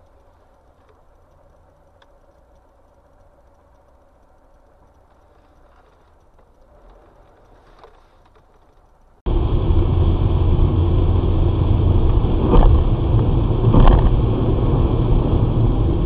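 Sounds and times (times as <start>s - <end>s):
faint click: 0.0s - 9.2s
car engine and tyre rumble: 0.0s - 16.0s.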